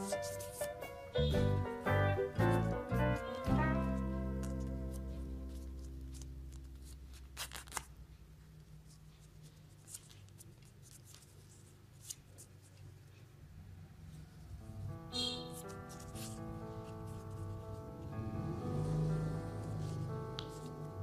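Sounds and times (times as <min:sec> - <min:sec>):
paper rustling and creasing: 0:02.6 - 0:08.0, 0:08.9 - 0:13.2, 0:15.6 - 0:17.4
paper crinkles and taps: 0:20.4 - 0:20.7.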